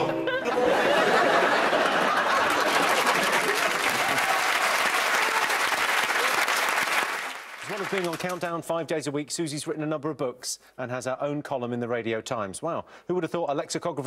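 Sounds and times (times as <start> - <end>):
audience applauding: 0.4 - 8.6.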